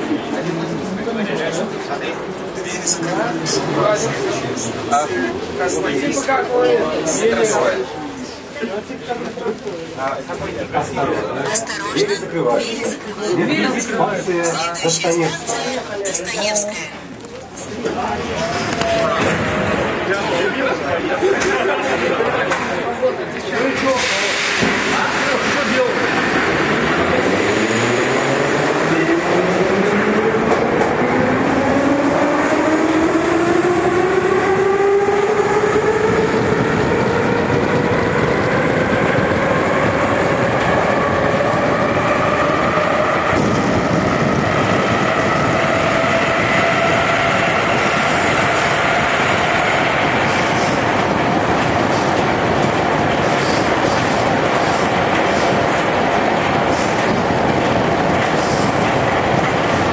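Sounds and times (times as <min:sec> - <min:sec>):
wheels rumbling on rails: 0:17.2 - 0:59.9.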